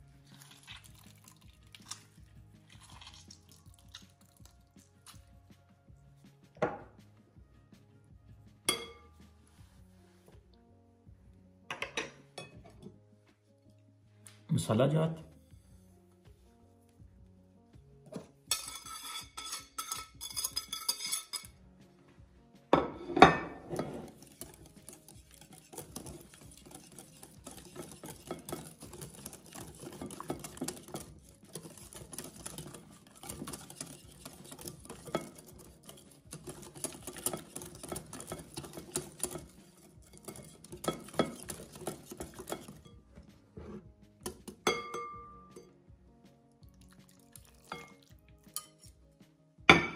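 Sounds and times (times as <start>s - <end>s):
crockery clinking: 8.7s - 9.1s, 11.7s - 13.0s, 18.5s - 21.5s, 22.8s - 43.0s, 44.2s - 45.8s, 47.6s - 48.9s
whisk scraping in a ceramic bowl: 18.5s - 21.6s, 23.0s - 44.8s, 47.7s - 48.9s.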